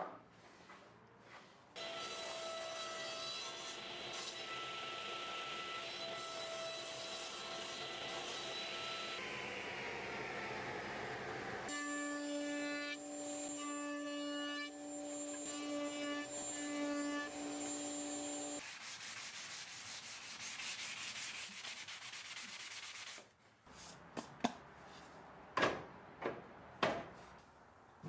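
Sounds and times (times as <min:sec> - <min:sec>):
hand sanding wood: 0:18.6 - 0:23.3.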